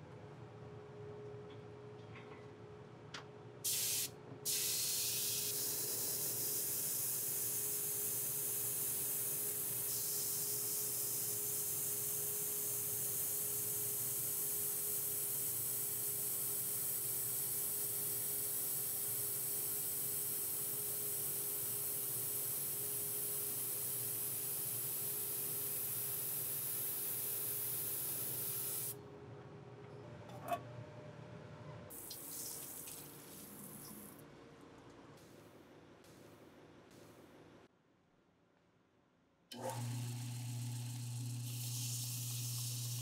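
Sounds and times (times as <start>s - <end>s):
faint machine hum: 0.0s - 43.0s.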